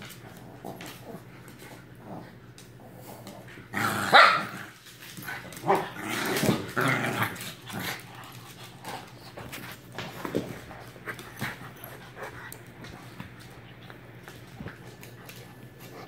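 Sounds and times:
dogs growling: 0.0s - 16.0s
dogs barking: 4.1s - 4.6s.

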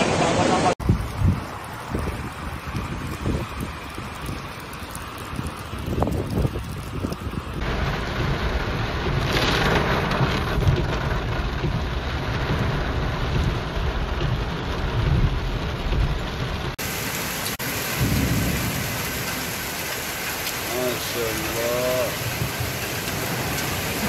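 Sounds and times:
heavy rain: 0.0s - 24.0s
rushing floodwater: 0.0s - 24.0s
deep rumble: 5.7s - 16.8s.

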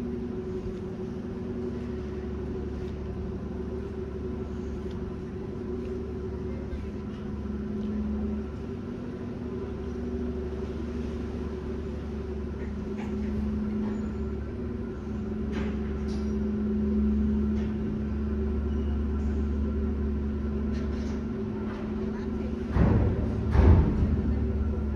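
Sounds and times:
ferry engines rumbling: 0.0s - 24.9s.

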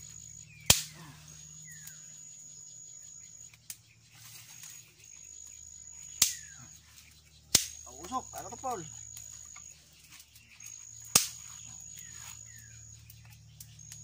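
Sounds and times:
insects trilling: 0.0s - 14.0s
sticks cracking: 0.6s - 1.1s, 6.1s - 6.6s, 7.5s - 8.2s, 10.2s - 12.1s.

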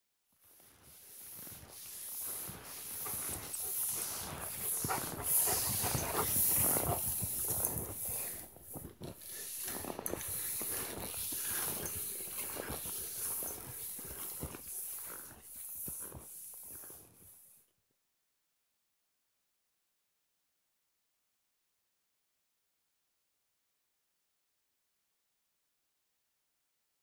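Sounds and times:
skis crunching and scraping on snow: 0.4s - 17.6s
dog panting: 1.9s - 15.3s.

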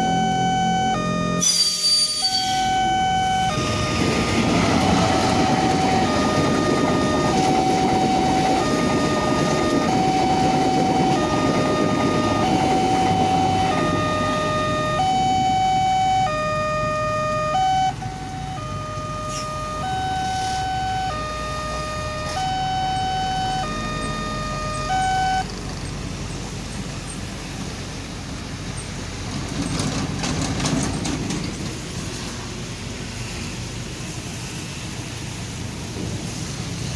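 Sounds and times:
two-tone crossing alarm chime: 0.0s - 25.5s
passing traffic: 0.0s - 36.9s
heavy rain hiss: 31.6s - 36.9s.

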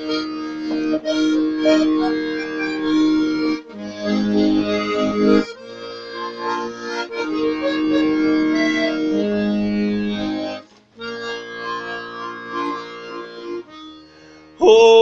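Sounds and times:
instrumental held chords: 0.0s - 15.0s.

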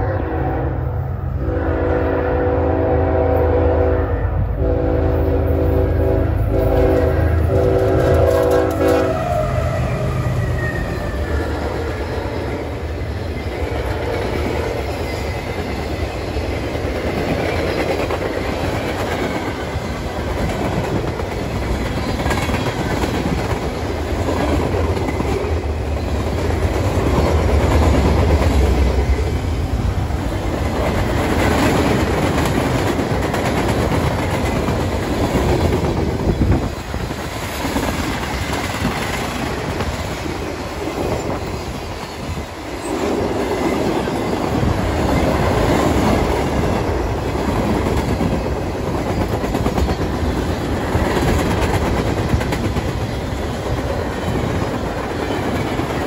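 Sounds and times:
train horn chord: 0.0s - 10.5s, 13.6s - 14.8s.

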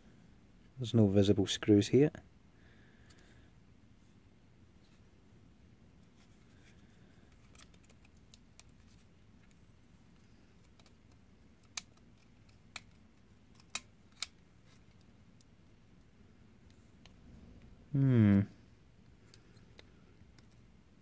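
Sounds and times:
metal tool clicking on plastic: 10.6s - 15.1s.

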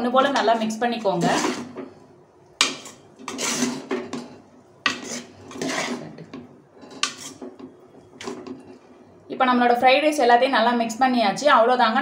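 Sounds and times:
metal spoon scraping pot: 0.2s - 1.9s, 2.6s - 8.8s.

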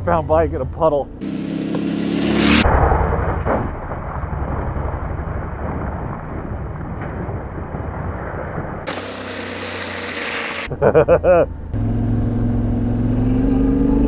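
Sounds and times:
motorcycle engine running: 0.0s - 2.6s, 11.3s - 14.0s
rushing rumbling wind noise: 2.4s - 9.0s.

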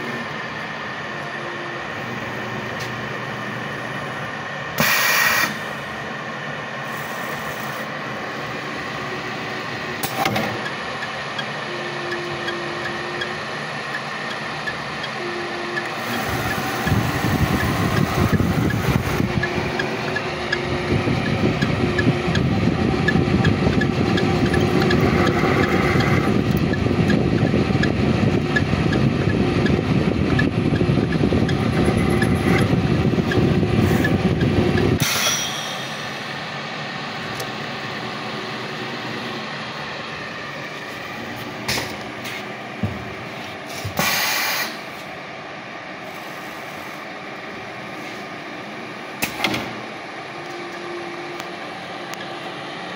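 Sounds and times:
milling machine cutting steel: 0.0s - 42.0s
machine humming: 0.0s - 43.8s.

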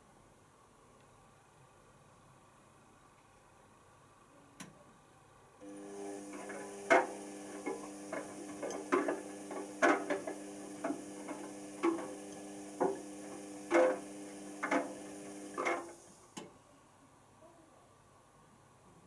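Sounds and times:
washing machine hum: 5.6s - 16.3s.

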